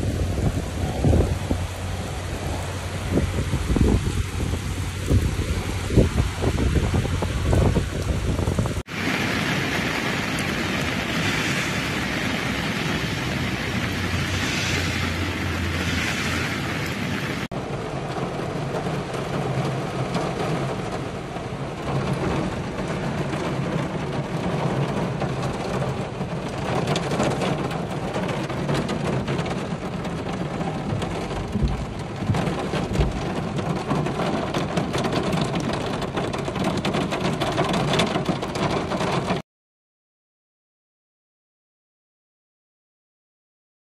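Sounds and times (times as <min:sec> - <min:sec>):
heavy rain pouring: 0:00.0 - 0:39.4.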